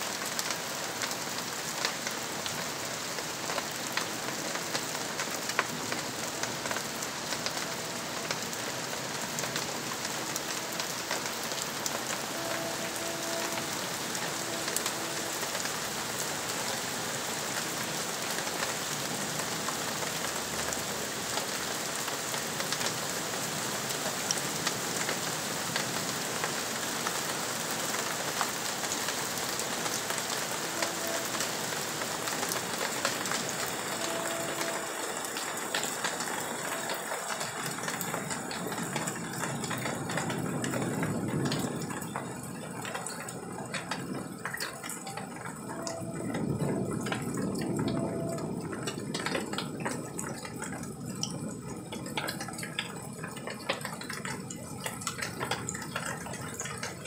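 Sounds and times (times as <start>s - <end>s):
rain hissing and pattering: 0.0s - 57.0s
water drips: 32.3s - 57.0s.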